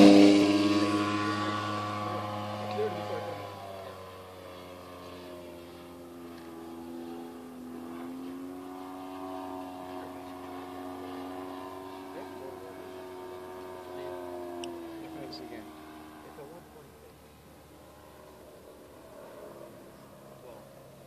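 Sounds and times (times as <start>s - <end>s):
model airplane motor droning: 0.0s - 21.0s.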